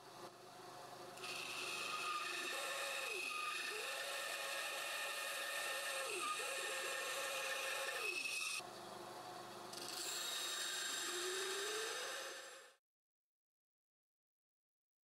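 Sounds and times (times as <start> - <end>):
band saw cutting wood: 1.2 - 8.6, 9.8 - 12.8
saw motor humming: 1.2 - 8.6, 9.8 - 12.8.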